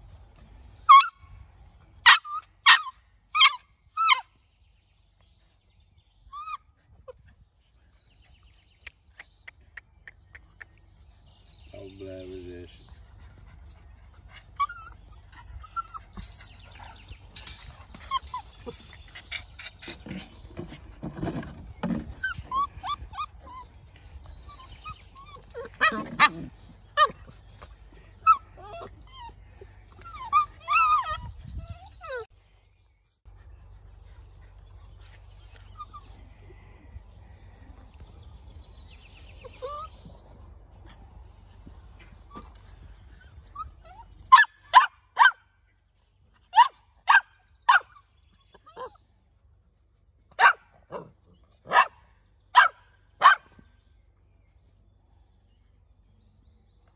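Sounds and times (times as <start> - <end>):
puppies whimpering and yipping: 0.0 - 4.3, 5.8 - 8.5, 10.4 - 32.6, 33.4 - 45.4, 46.4 - 49.2.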